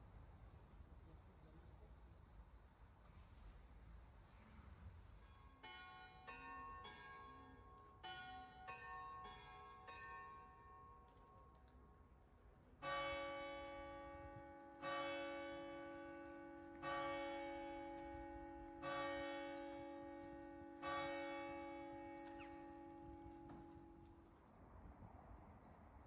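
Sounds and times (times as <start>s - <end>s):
church bell tolling: 5.3s - 11.5s, 12.8s - 24.4s.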